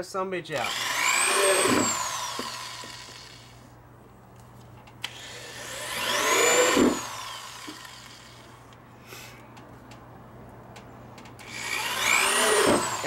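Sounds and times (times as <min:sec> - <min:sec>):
electric drill boring through plastic: 0:00.6 - 0:03.6, 0:05.0 - 0:08.5, 0:11.4 - 0:13.0.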